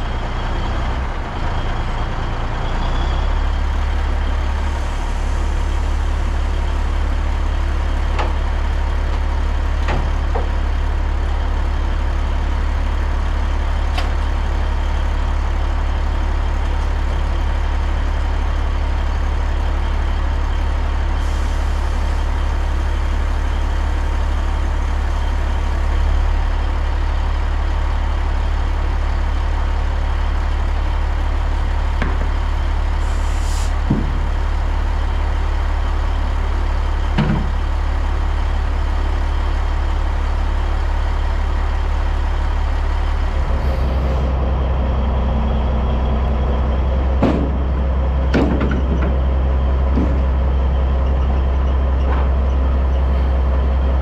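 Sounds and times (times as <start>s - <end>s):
diesel truck engine drone: 0.0s - 54.0s
brief hisses: 33.0s - 33.8s.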